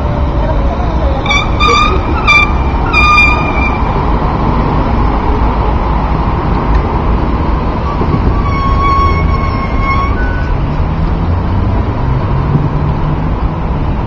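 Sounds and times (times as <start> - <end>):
rumble of passing cars: 0.0 - 14.0
short high beeping tone: 1.3 - 4.1.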